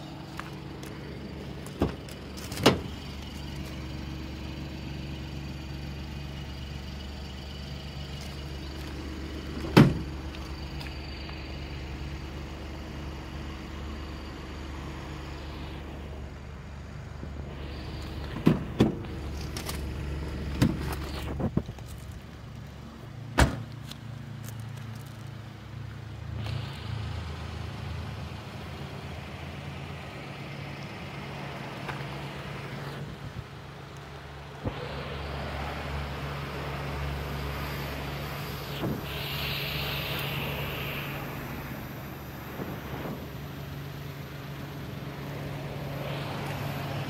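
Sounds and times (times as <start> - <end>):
car engine idling: 0.0 - 47.0
car doors clunking shut: 1.6 - 3.0, 9.5 - 10.4, 18.3 - 19.8, 20.4 - 21.6, 23.3 - 23.8.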